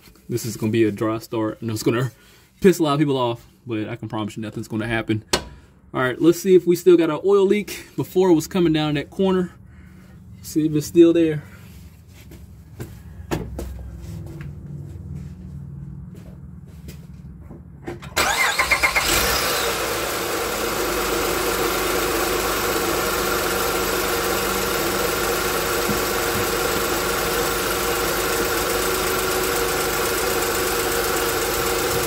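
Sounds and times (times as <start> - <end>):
car engine idling: 18.2 - 32.0.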